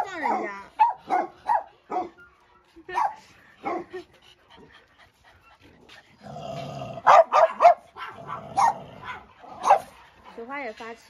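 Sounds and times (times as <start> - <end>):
dogs barking: 0.0 - 2.2, 2.9 - 4.0, 7.0 - 10.2.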